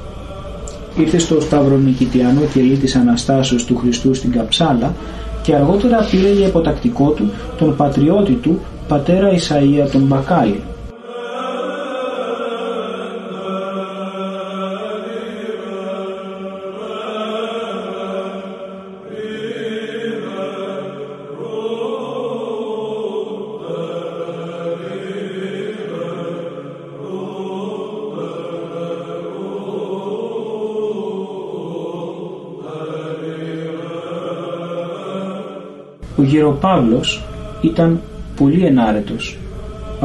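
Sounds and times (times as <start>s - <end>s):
low held drone note: 0.0s - 10.9s, 36.0s - 40.0s
church chant singing: 0.0s - 40.0s.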